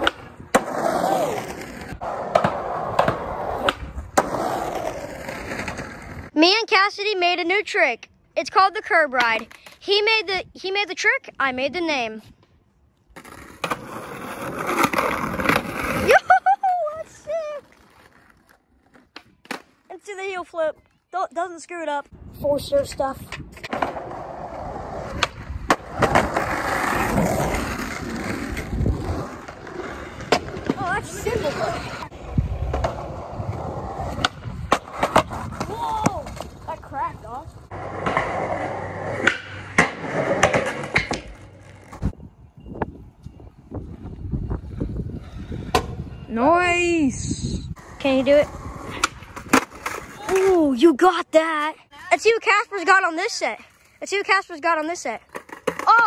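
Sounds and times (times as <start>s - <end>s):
skateboard wheels rolling on asphalt: 0.0s - 7.8s, 11.4s - 46.3s, 47.7s - 56.0s
skateboard clacking on ground: 54.7s - 56.0s.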